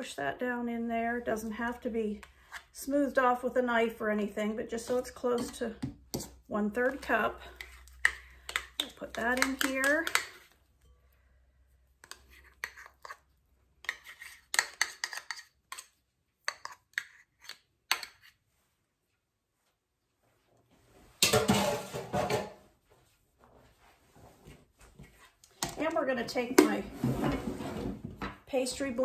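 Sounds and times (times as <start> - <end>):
metal spoon scraping plastic cup: 4.8 - 10.6, 12.0 - 18.4.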